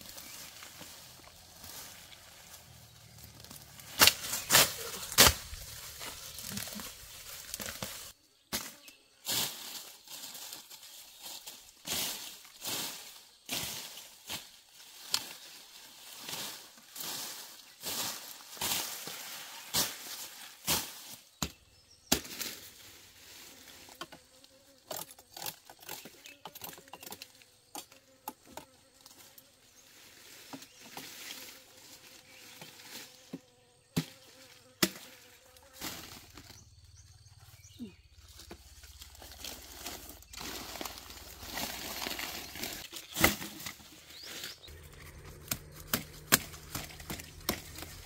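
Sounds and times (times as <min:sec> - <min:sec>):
rustling: 0:00.0 - 0:08.2, 0:38.1 - 0:48.0
sharp cracks and knocks: 0:03.8 - 0:05.7, 0:45.1 - 0:48.0
insect buzzing: 0:23.3 - 0:30.0, 0:30.6 - 0:43.2, 0:44.4 - 0:48.0.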